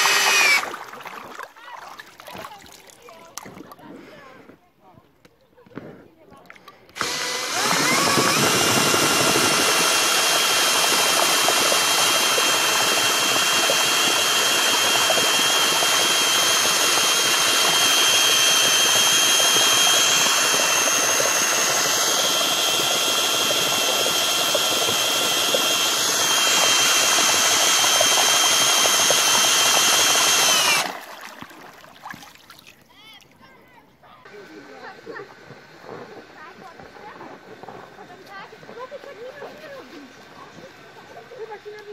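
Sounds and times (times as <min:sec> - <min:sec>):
cordless drill motor whining: 0:00.0 - 0:00.8, 0:06.9 - 0:31.2, 0:34.3 - 0:41.9.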